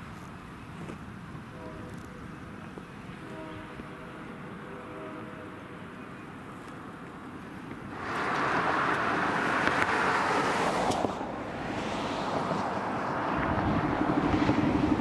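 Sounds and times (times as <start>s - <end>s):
vehicle passing: 7.9s - 15.0s.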